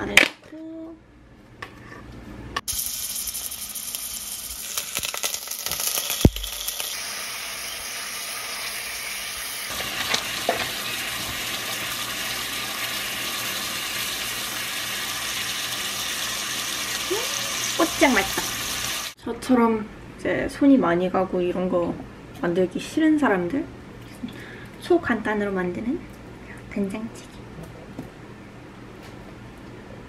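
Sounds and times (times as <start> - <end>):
garlic sizzling in hot oil: 2.7 - 19.2.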